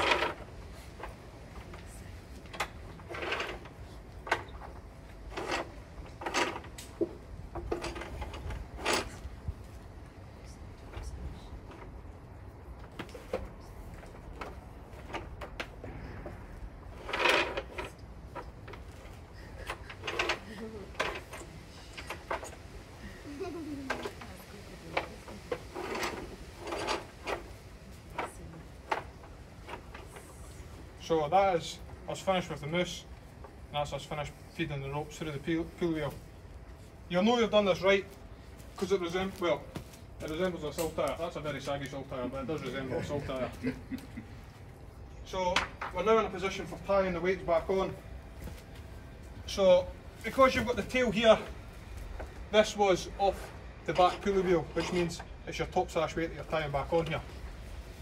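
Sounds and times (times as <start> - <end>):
sash cord rubbing through pulleys: 2.6 - 6.8, 7.6 - 9.4, 16.8 - 22.7, 25.2 - 30.9.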